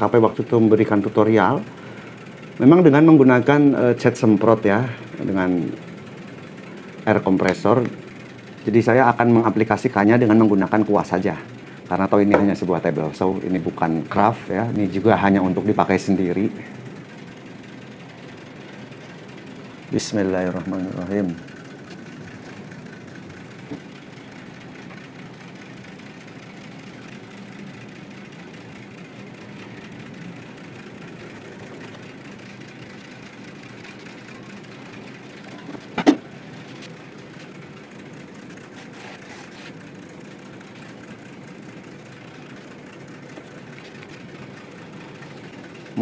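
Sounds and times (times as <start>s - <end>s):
mechanical hum: 0.0s - 46.0s.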